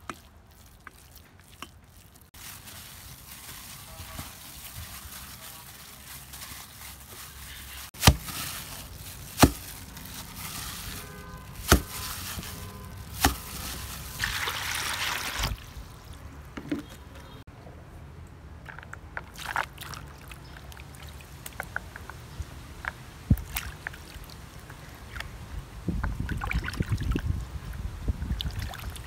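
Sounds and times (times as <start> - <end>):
water splashing and dripping: 0.0 - 7.2, 7.9 - 17.1, 18.7 - 27.4, 28.1 - 29.0
water pouring into plastic basin: 13.0 - 16.2, 28.4 - 29.0.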